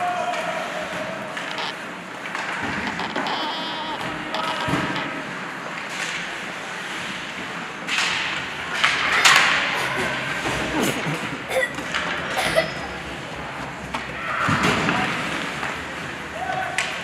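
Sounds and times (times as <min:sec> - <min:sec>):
people shouting: 0:00.0 - 0:01.6
hockey sticks and puck clacking: 0:00.0 - 0:17.0
rink noise: 0:00.8 - 0:06.5.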